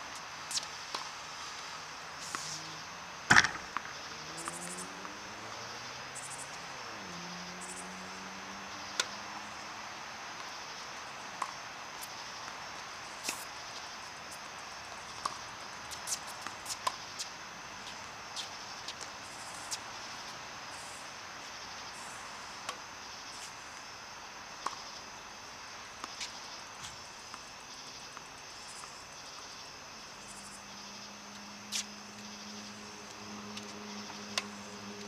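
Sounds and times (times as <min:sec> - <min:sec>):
background hiss: 0:00.0 - 0:35.0
racket hitting tennis ball: 0:03.3 - 0:05.3.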